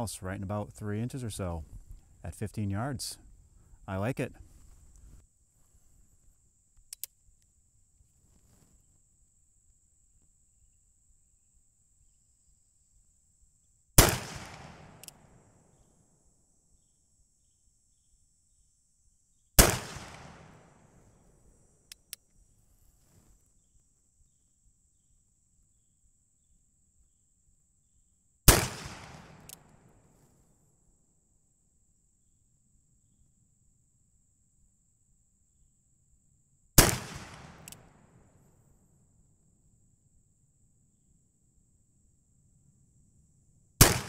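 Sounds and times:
small clicks: 6.8s - 7.5s, 14.8s - 15.3s, 21.8s - 22.4s, 29.0s - 29.8s, 37.3s - 38.0s.

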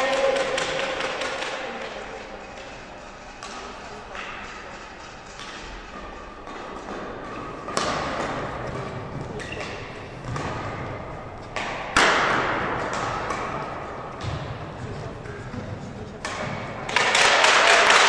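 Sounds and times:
rackets hitting shuttlecock: 2.6s - 14.8s, 16.2s - 18.0s.

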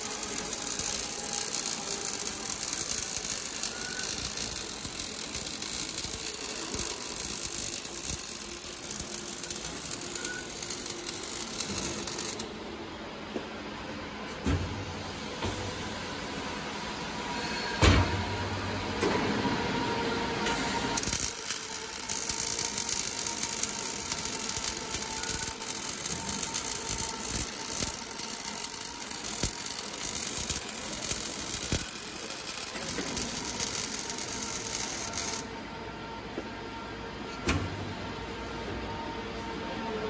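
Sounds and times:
arc welding hiss: 0.0s - 12.5s, 20.7s - 35.4s.

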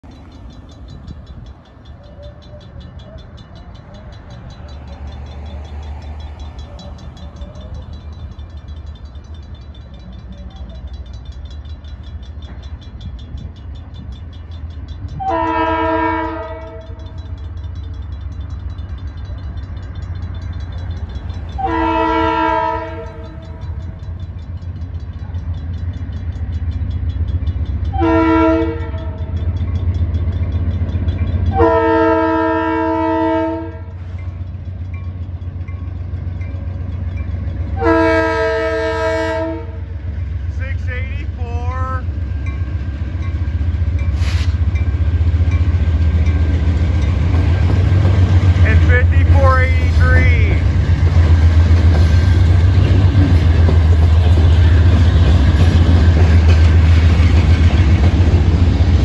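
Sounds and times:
crossing bell ringing: 0.0s - 59.0s
train rumbling: 0.0s - 59.0s
train horn blasts: 15.1s - 17.2s, 21.6s - 23.7s, 27.9s - 29.3s, 31.5s - 34.0s, 37.7s - 41.4s.

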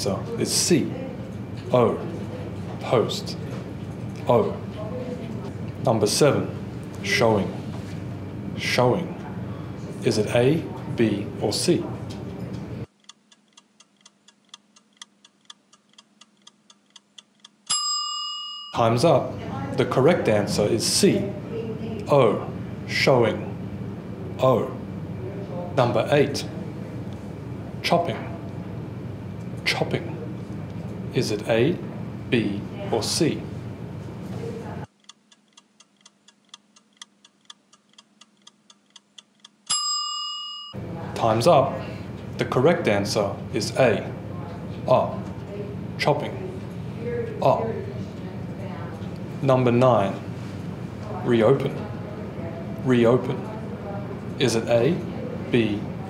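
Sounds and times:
clock-like timer ticks: 12.9s - 17.8s, 34.9s - 39.8s.

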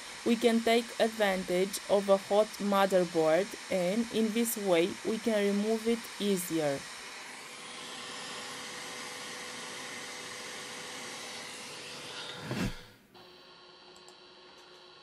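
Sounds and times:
hot air station hissing: 0.0s - 12.9s.

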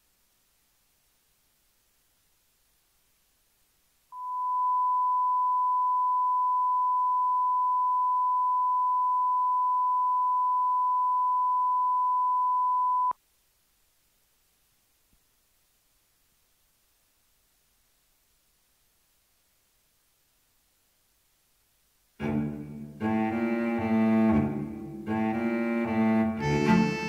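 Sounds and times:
sine test tone: 4.1s - 13.2s.

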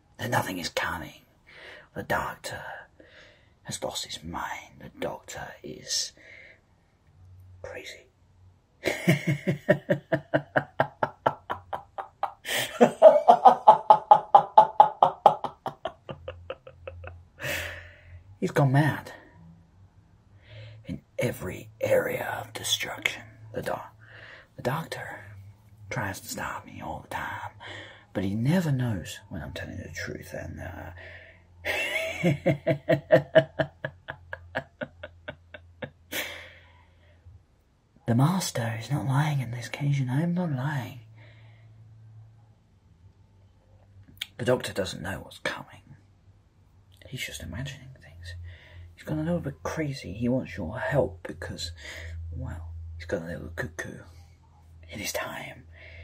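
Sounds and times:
breath: 3.0s - 3.6s, 6.2s - 6.7s, 20.4s - 20.8s, 24.0s - 24.5s, 27.6s - 28.1s, 31.0s - 31.5s, 41.2s - 41.9s, 48.4s - 48.9s, 55.7s - 56.0s
man laughing: 8.8s - 17.9s, 31.7s - 36.6s.

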